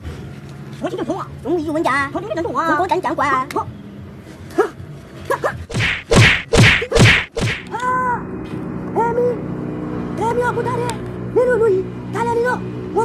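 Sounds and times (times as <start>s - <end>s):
swishing punch whacks: 5.7s - 7.7s.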